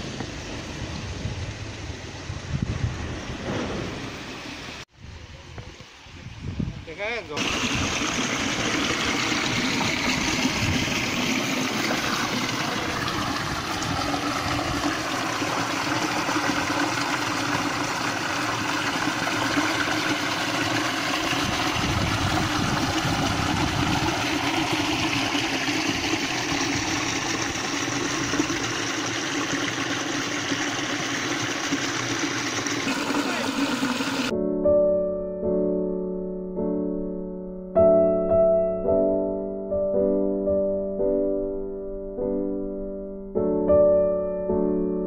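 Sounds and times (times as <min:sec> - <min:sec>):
stream water rushing over rocks: 0:07.4 - 0:34.3.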